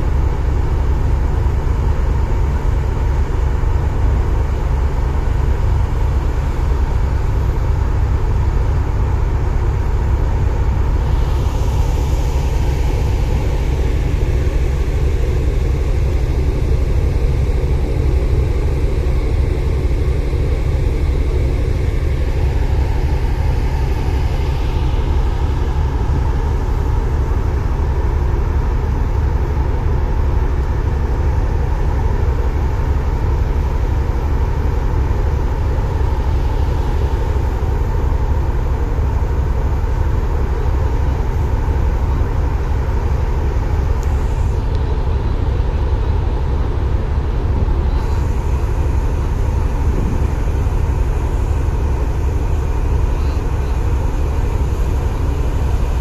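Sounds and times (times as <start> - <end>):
ship engines humming: 0.0 - 56.0
wind buffeting microphone: 47.4 - 52.9.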